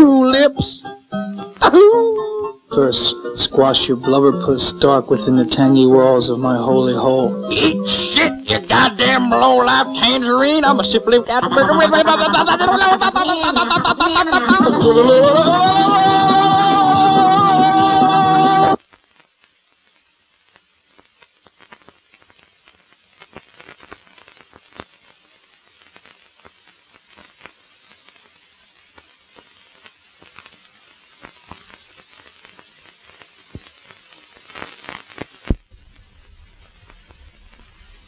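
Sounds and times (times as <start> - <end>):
faint hiss: 0.0 - 38.0
film soundtrack crackling and pops: 0.0 - 38.0
sharp crack: 28.8 - 38.0.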